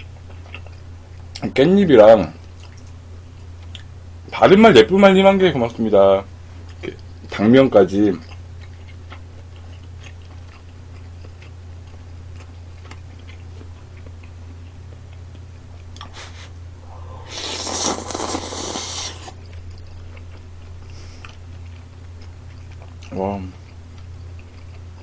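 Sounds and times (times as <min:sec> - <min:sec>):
steady low hum: 0:00.0 - 0:25.0
loud slurping of noodles: 0:16.2 - 0:19.4.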